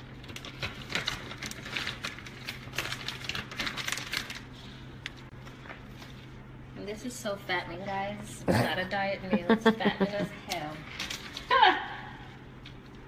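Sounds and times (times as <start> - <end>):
plastic bag crinkling: 0.0 - 6.3.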